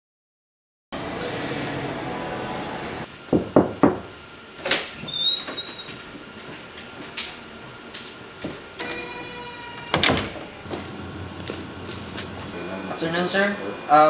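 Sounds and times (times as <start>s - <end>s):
lift doors sliding with hum: 1.0s - 3.1s, 4.4s - 12.6s
high squeak: 5.0s - 6.0s, 8.8s - 10.0s.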